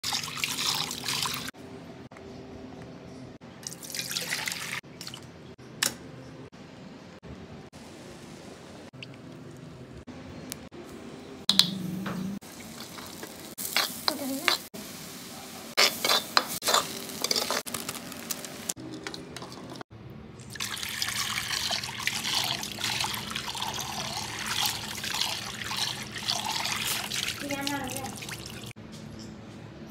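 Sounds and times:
steel spoon scraping a pot: 15.8s - 17.6s
water running onto metal pan: 20.5s - 28.7s.

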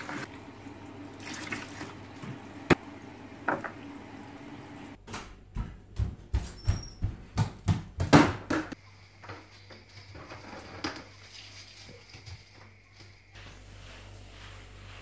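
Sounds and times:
cloth dipped in bucket: 1.0s - 2.7s
heavy footsteps on laminate floor: 5.4s - 8.2s
cloth rubbing floor: 13.4s - 15.0s.

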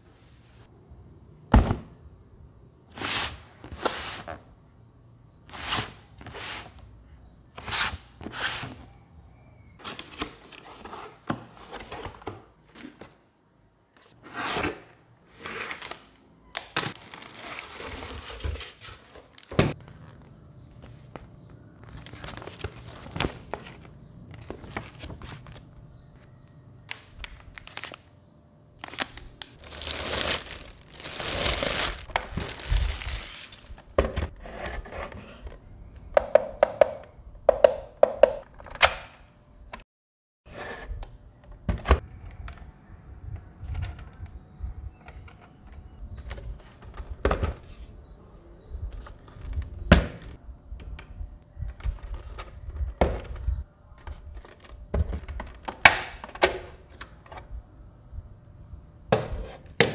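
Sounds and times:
plastic bag crinkling: 16.8s - 18.4s, 28.8s - 34.0s.

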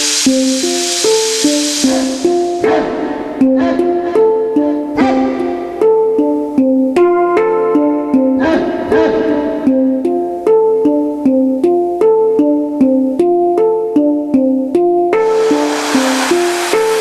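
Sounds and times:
electronic keyboard repeating notes: 0.0s - 17.0s
brief rushing swell: 15.2s - 17.0s.

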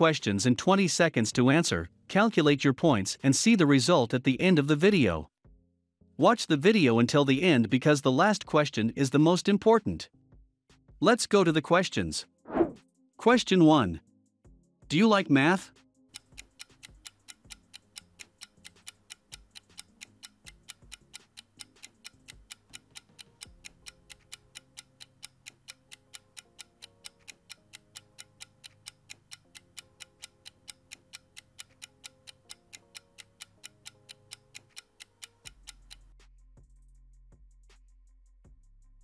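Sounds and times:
faint background music: 0.0s - 5.3s, 6.2s - 10.2s, 11.0s - 25.0s
clock ticking: 16.1s - 36.1s.

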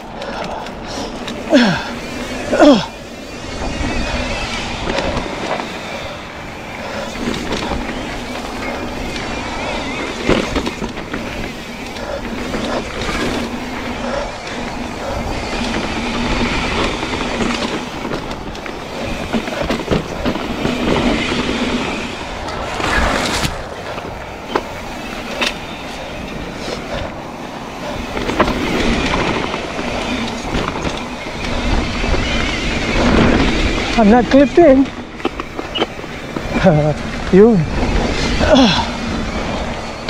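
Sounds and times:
bike chain rattling: 0.0s - 40.0s
bike tyres rolling over dirt: 0.0s - 40.0s.

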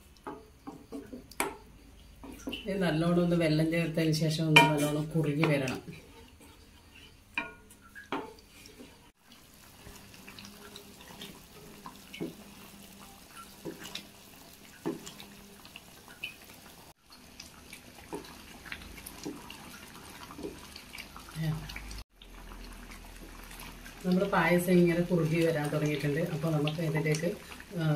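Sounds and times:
spatula stirring thick syrup: 4.8s - 12.7s.

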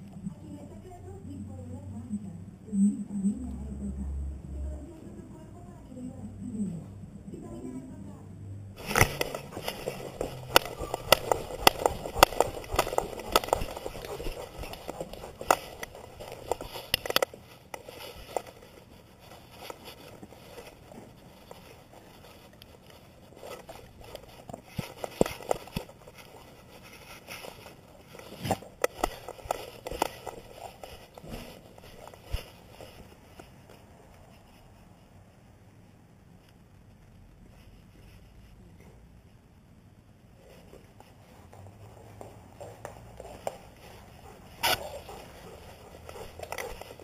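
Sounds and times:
sharp clicks and knocks: 8.8s - 18.6s
fur brushing camera housing: 8.8s - 22.8s, 44.2s - 47.0s.

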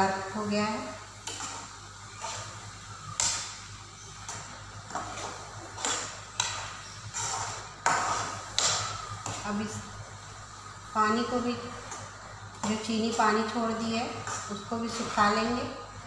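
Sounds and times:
steady low hum: 0.0s - 16.0s
spatula scraping frying pan: 1.1s - 9.5s.

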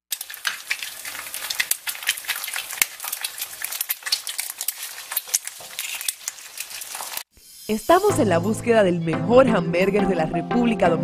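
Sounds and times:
food sizzling in hot fat: 0.1s - 8.5s.

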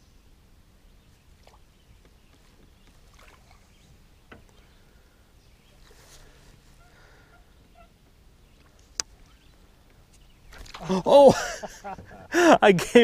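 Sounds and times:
water lapping: 1.4s - 7.9s, 10.4s - 12.5s.

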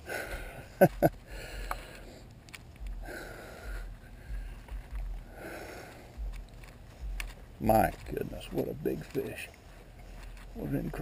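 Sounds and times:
person breathing heavily: 0.0s - 7.6s
low rumble: 0.4s - 11.0s.

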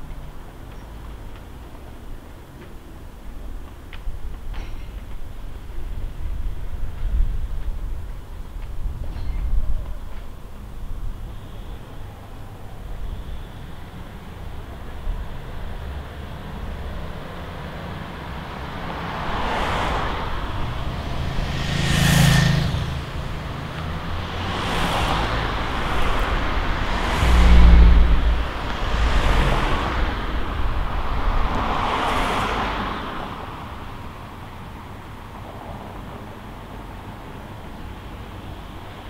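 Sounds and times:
cars passing by: 0.0s - 39.0s
deep vehicle rumble: 17.6s - 32.0s.

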